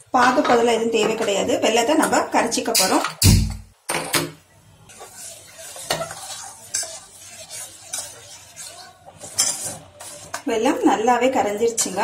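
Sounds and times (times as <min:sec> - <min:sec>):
metal spoon scraping a pot: 0:04.9 - 0:10.8, 0:11.6 - 0:12.0.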